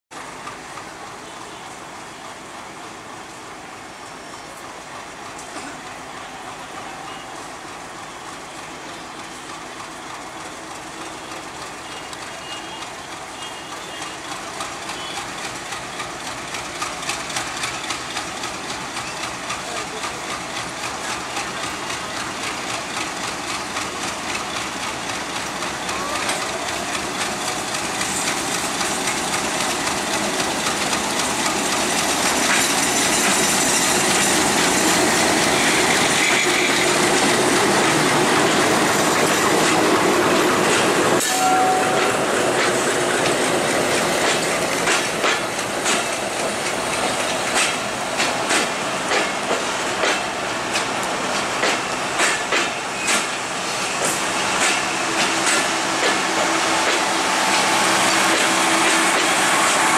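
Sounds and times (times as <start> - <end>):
diesel train passing: 0.1 - 59.9
wheels clicking over rail joints: 42.0 - 57.1.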